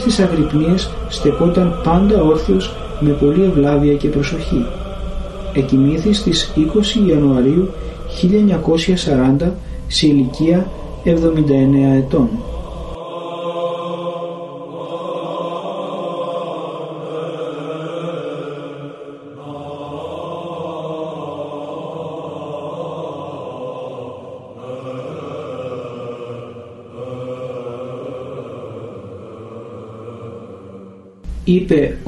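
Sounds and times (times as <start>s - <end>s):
low drone note: 0.0s - 13.0s
church chanting: 0.0s - 32.0s.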